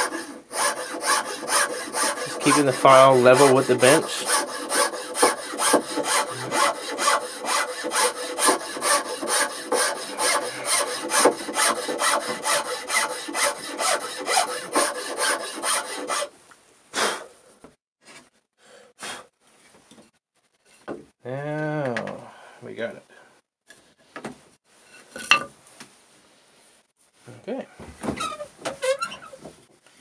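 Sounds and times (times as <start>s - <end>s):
hand file scraping wood: 0.0s - 16.3s.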